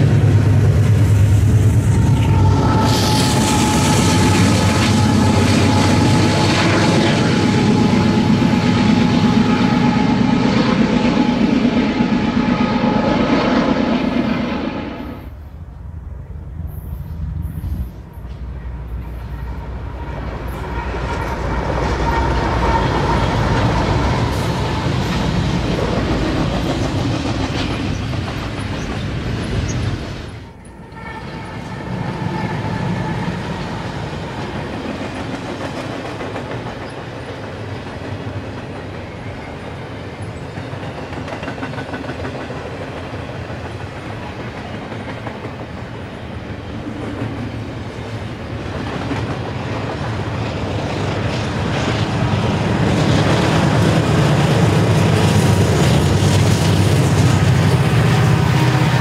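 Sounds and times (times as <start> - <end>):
freight cars rumbling past: 0.0 - 15.4
diesel locomotives passing: 0.0 - 59.0
train wheels clacking on rail joints: 17.6 - 46.1, 48.5 - 59.0.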